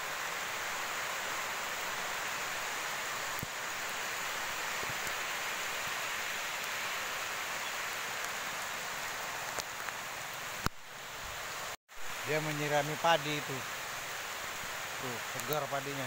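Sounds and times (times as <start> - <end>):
heavy rain: 0.0 - 16.0.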